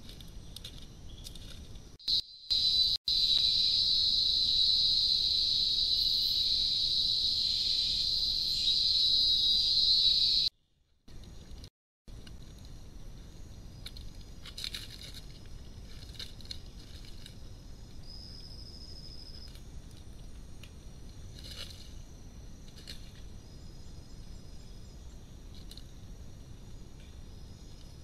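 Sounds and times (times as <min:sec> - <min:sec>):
high insect tones: 0:00.3 - 0:10.5.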